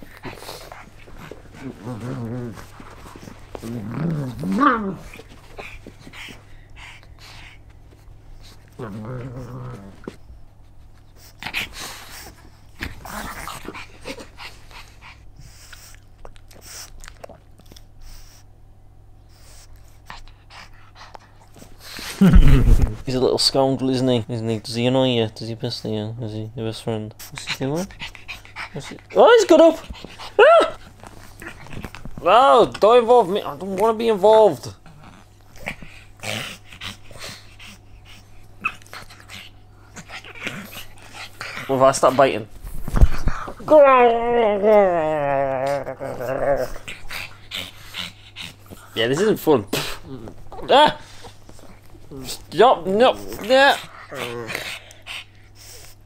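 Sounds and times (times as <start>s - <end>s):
dogs breathing noisily: 0.0s - 3.8s, 5.1s - 8.8s, 9.9s - 18.6s, 19.2s - 22.6s, 27.1s - 32.2s, 33.2s - 43.6s, 46.6s - 56.0s
dogs scuffling in play: 0.0s - 6.5s
steady low hum: 0.0s - 56.0s.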